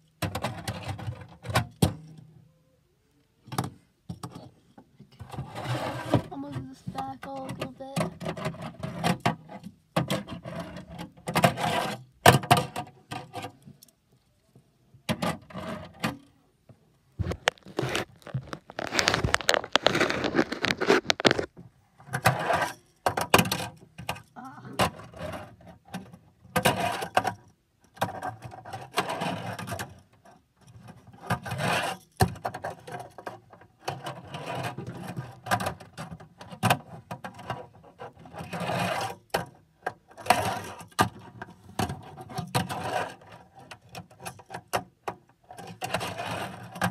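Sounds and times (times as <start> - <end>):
fingerboard rolling and scraping: 5.2 - 6.3, 17.2 - 23.7, 37.1 - 39.3, 39.9 - 43.6, 45.8 - 46.9.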